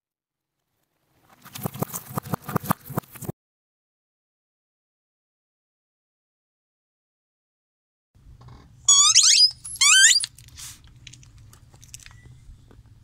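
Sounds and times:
rubber toy squeaks: 8.9 - 10.4.

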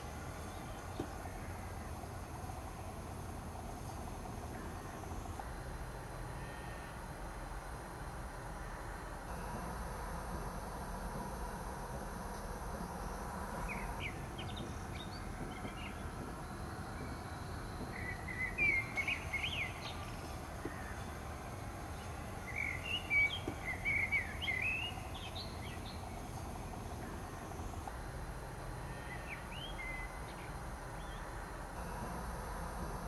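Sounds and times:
songbird chirping: 0.0 - 7.7, 8.3 - 33.0
low background rumble: 0.0 - 33.0.

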